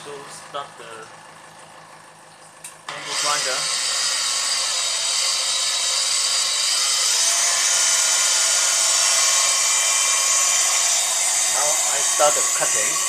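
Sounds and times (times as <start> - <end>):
angle grinder whine: 2.9 - 13.0.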